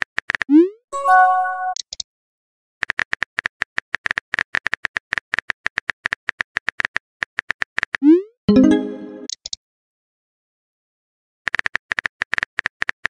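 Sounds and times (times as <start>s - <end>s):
message chime: 1.0s - 1.8s, 8.5s - 9.3s.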